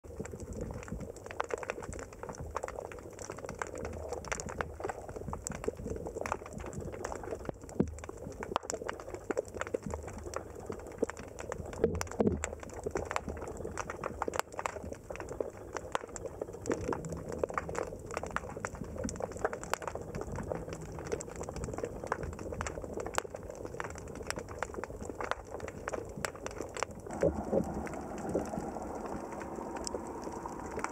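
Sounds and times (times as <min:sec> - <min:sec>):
underwater clicks crackling: 0:00.1 - 0:30.9
low underwater rumble: 0:09.9 - 0:30.9.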